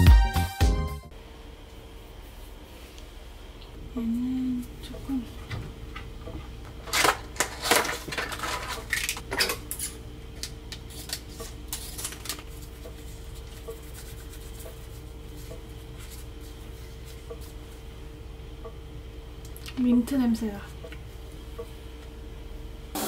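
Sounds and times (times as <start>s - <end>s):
faint steady hum: 1.0s - 23.0s
rustling and handling clatter: 6.8s - 9.2s.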